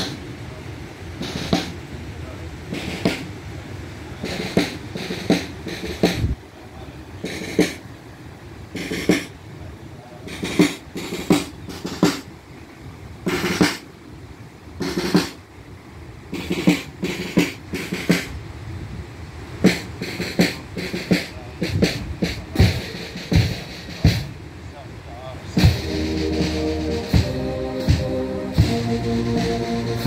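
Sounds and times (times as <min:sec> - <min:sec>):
marching snare drums: 0:00.0 - 0:00.3, 0:01.2 - 0:03.4, 0:04.1 - 0:06.4, 0:07.2 - 0:07.8, 0:08.7 - 0:09.4, 0:10.2 - 0:12.4, 0:13.2 - 0:14.0, 0:14.8 - 0:15.4, 0:16.3 - 0:18.4, 0:19.6 - 0:24.4, 0:25.5 - 0:30.0.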